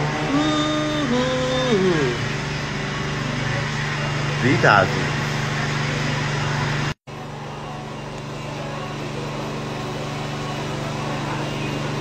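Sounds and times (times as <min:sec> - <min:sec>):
electric motor hum: 0:00.0 - 0:07.0.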